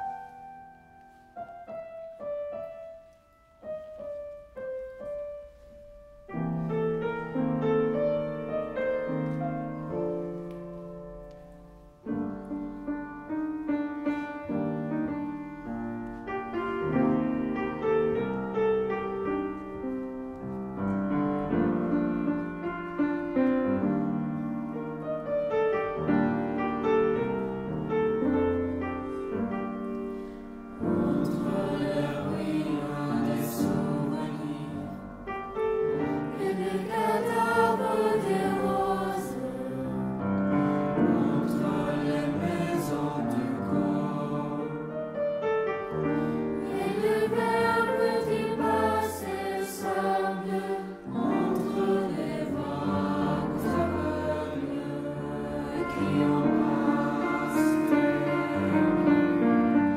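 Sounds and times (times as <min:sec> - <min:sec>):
piano accompaniment: 0:00.0 - 0:59.9
mixed choir singing: 0:30.8 - 0:45.0, 0:46.2 - 0:59.9.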